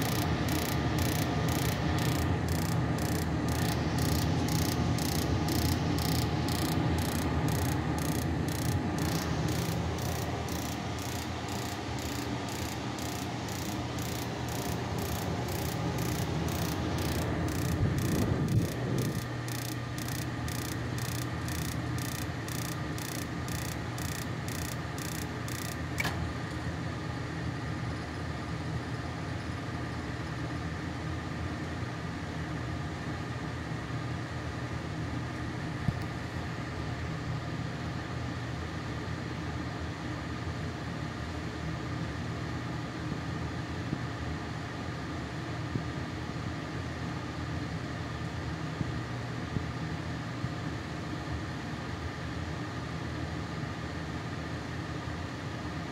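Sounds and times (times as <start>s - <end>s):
spark igniter ticking: 0.0s - 26.1s
gas furnace humming: 0.0s - 55.9s.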